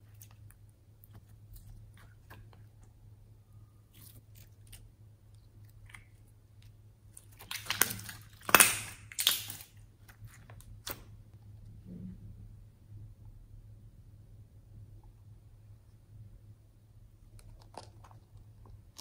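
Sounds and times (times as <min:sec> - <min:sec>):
slime squished by hand: 0:05.6 - 0:11.1
slime popping and crackling: 0:07.1 - 0:11.1.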